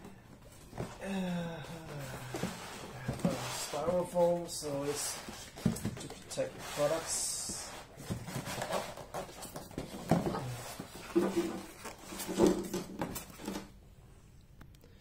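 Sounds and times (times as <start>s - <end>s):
styrofoam and cardboard scraping: 2.3s - 13.6s.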